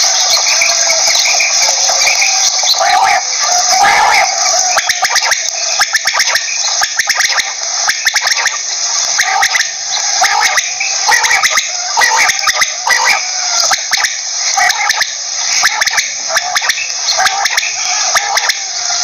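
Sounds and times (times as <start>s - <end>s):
steady hiss: 0.0s - 19.0s
quail calling: 1.4s - 19.0s.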